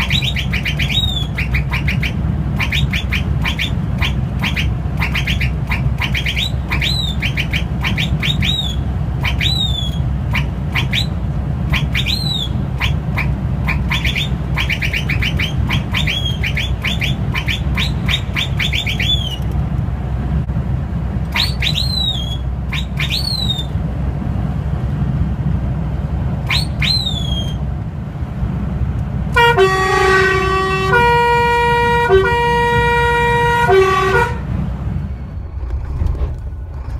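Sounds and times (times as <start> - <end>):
truck whistle horn swooping: 0.0 - 19.5, 21.3 - 23.8, 26.4 - 27.6, 29.3 - 34.6
road noise: 0.0 - 36.9
truck engine drone: 0.0 - 36.9
horn playing held chords: 29.4 - 34.6.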